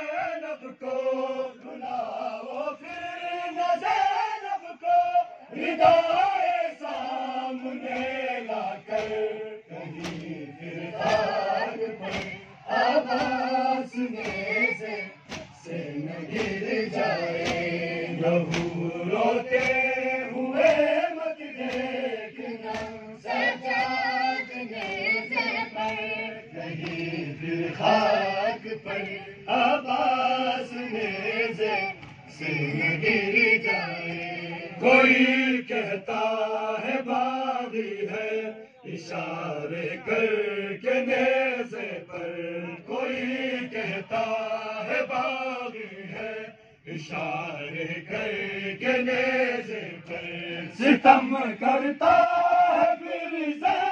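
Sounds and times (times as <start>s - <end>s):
crowd of men chanting a lament: 0.0s - 53.9s
chest-beating slaps: 7.8s - 8.3s, 8.9s - 27.2s.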